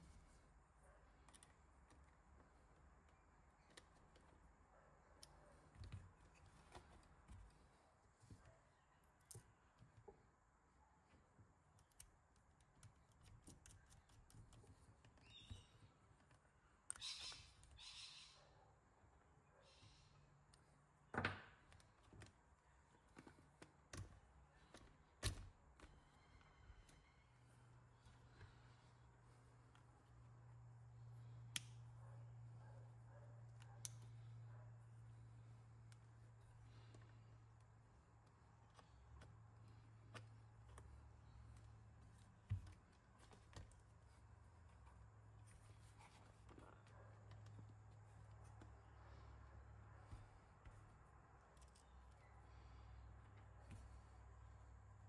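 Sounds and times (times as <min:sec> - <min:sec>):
faint clicks and knocks of handling: 0:00.0 - 0:17.0, 0:20.4 - 0:32.0, 0:33.0 - 0:55.0
faint clicks of small parts: 0:01.1 - 0:10.1, 0:11.1 - 0:17.8, 0:33.4 - 0:34.4, 0:50.0 - 0:54.1.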